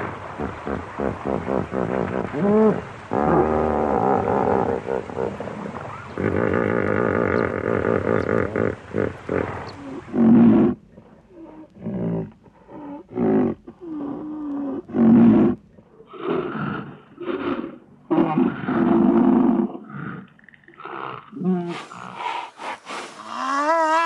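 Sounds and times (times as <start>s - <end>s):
rhinoceros calling: 2.2s - 12.1s.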